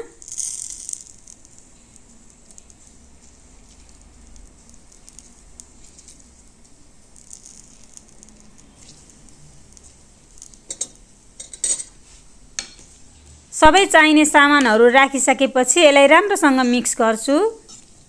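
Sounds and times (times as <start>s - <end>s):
juice pattering on vegetables: 0.2s - 11.1s.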